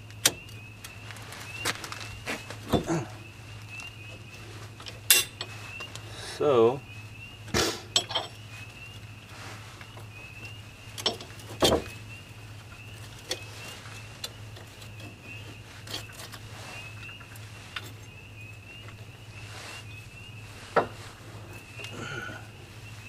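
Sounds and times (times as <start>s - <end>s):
steady low hum: 0.0s - 23.0s
light metallic clicks and knocks: 11.0s - 11.9s.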